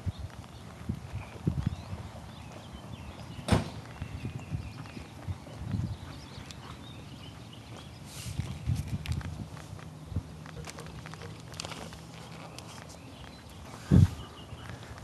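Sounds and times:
footsteps walking: 0:04.8 - 0:15.0.

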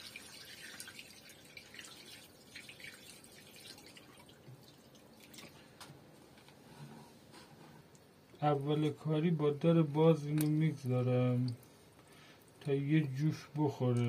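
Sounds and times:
water trickling into a pot: 0:00.0 - 0:05.7.

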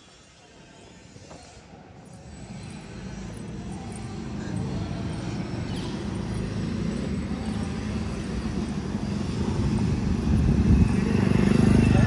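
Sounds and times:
vehicle engine low rumble: 0:06.0 - 0:12.0.

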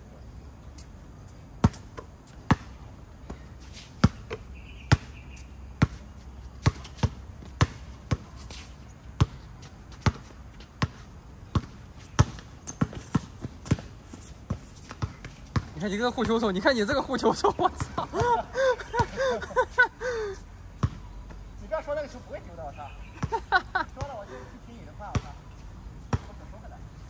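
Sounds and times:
basketball bouncing: 0:06.6 - 0:08.3, 0:09.2 - 0:09.4, 0:10.0 - 0:10.9, 0:11.5 - 0:16.6, 0:26.1 - 0:26.4.

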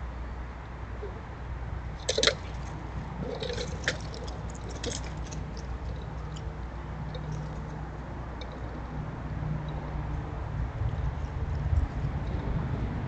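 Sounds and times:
low steady hum: 0:00.0 - 0:13.0
squirrels clicking and rustling: 0:02.0 - 0:09.0.

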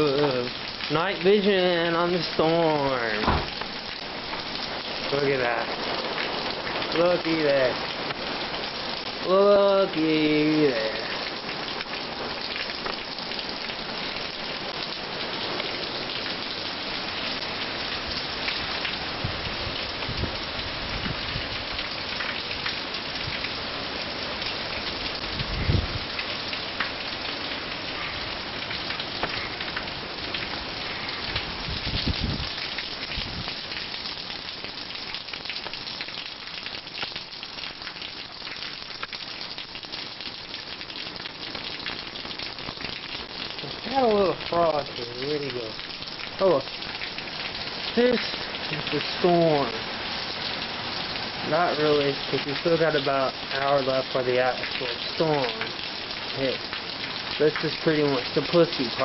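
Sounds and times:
heavy rain pouring: 0:00.0 - 0:59.0.

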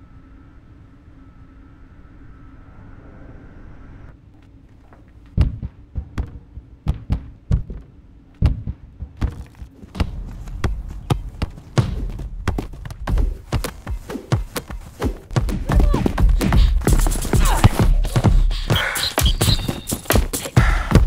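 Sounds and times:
dull heavy thumps: 0:05.3 - 0:21.0
low rumble: 0:08.6 - 0:14.0.

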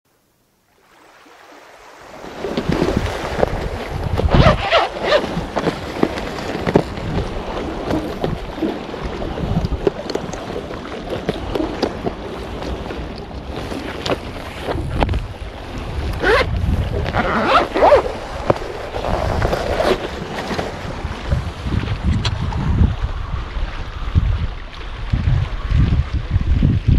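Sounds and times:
sea waves: 0:00.2 - 0:26.9
wind buffeting microphone: 0:02.4 - 0:26.9
rustles and clicks of plastic case: 0:05.1 - 0:07.3.

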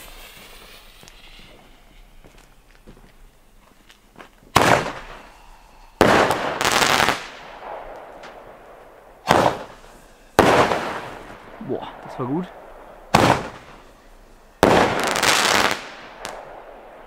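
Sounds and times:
roman candle firework bangs: 0:00.0 - 0:03.2, 0:04.5 - 0:17.0.

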